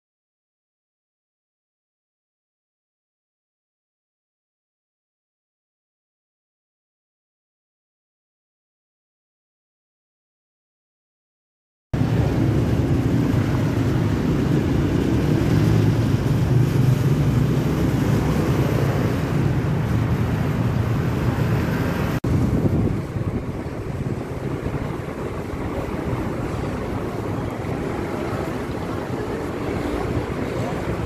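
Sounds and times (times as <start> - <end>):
road traffic rumble: 12.0 - 31.0
wind on microphone: 12.0 - 31.0.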